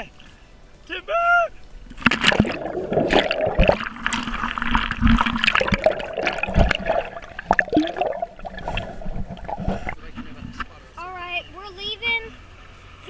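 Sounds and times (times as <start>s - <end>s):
muffled splashes and gurgles: 1.6s - 10.9s
underwater churning and bubbling: 1.8s - 10.4s.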